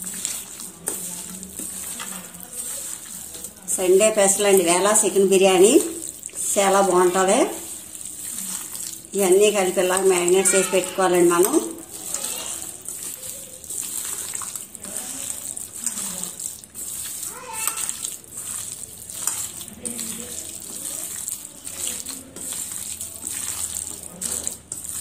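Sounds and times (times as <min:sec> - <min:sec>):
hand kneading wet marinade: 0:00.0 - 0:25.0.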